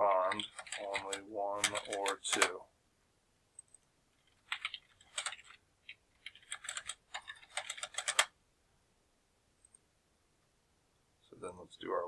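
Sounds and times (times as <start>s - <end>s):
typing on computer keyboard: 0.2s - 2.6s, 4.4s - 8.3s.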